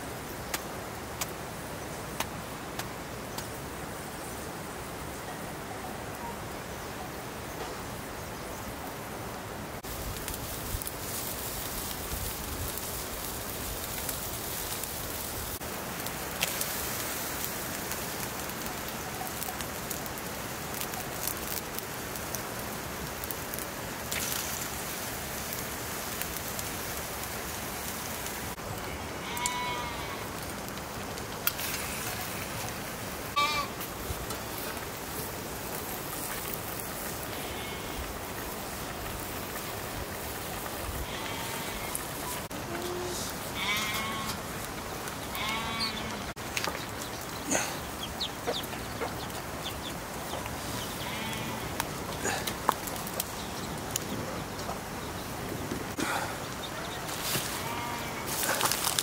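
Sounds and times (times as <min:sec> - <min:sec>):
wood fire crackling: 0:00.0 - 0:59.0
vegetables sizzling in a wok: 0:09.8 - 0:30.8, 0:56.6 - 0:59.0
animal bleating: 0:28.9 - 0:30.3, 0:33.4 - 0:33.8, 0:41.0 - 0:42.0, 0:42.7 - 0:44.4, 0:45.3 - 0:46.3, 0:50.9 - 0:51.8, 0:57.4 - 0:58.6.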